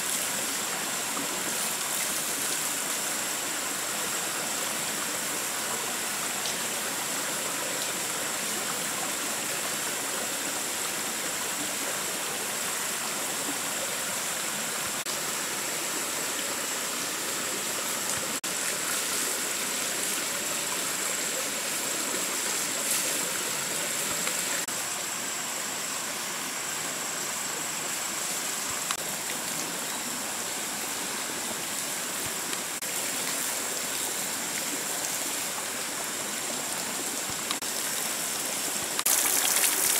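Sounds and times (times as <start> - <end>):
stream running: 0.0 - 39.9
water splashing onto rocks: 39.0 - 39.9.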